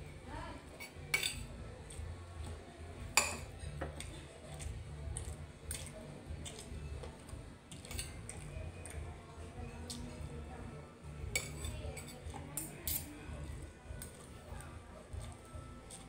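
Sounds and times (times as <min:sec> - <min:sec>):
cutlery clinking on a plate: 0:00.8 - 0:01.5, 0:03.1 - 0:06.7, 0:07.7 - 0:09.0, 0:11.3 - 0:13.2.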